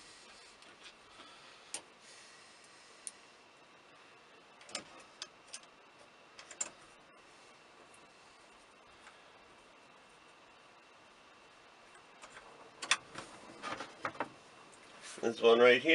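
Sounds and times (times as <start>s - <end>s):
small parts clicking: 4.6s - 5.8s.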